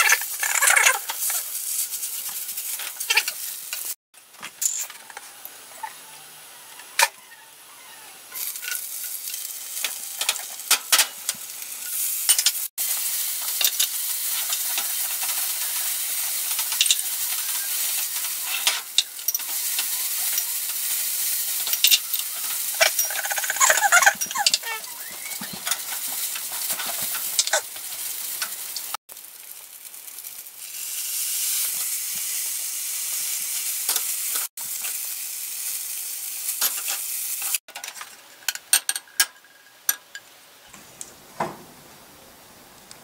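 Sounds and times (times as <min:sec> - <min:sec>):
oil sizzling in frying pan: 0:00.0 - 0:05.6, 0:08.3 - 0:40.3
utensils clinking on porcelain dishes: 0:21.6 - 0:27.6.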